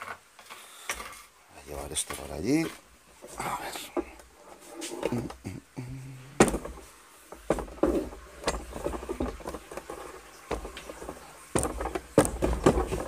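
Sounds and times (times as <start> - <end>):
footsteps on tiled floor: 6.4 - 13.0
sharp knocks: 11.5 - 13.0.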